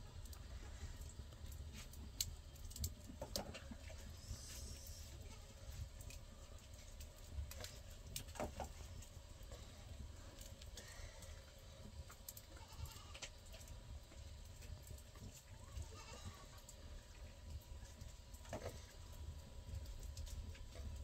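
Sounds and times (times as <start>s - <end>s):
wood fire crackling: 0.0s - 21.0s
livestock bleating: 15.8s - 16.5s.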